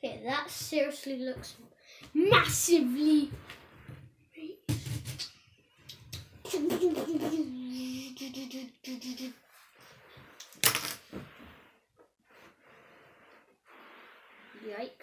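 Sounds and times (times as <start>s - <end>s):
child humming: 7.2s - 9.4s.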